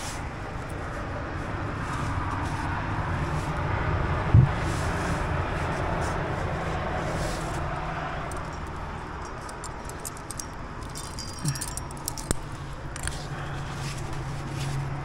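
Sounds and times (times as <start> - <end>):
steady rushing noise: 0.0 - 8.5
climbing gear clinking: 8.2 - 14.8.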